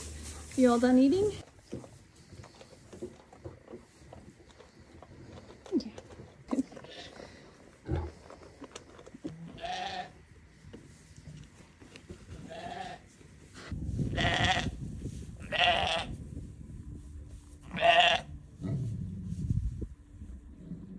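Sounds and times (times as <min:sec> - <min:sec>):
sheep bleating: 0:09.6 - 0:10.2, 0:12.4 - 0:13.0, 0:15.5 - 0:16.1, 0:17.7 - 0:18.3
low rumble: 0:13.8 - 0:20.9.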